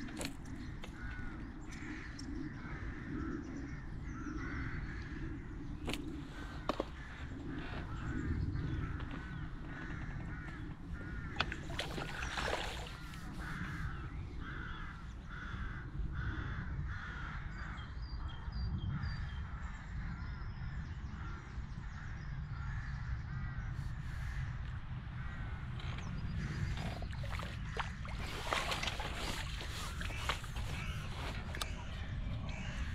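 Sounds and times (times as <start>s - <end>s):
crow cawing: 0.8s - 5.4s, 6.4s - 17.8s, 29.4s - 32.9s.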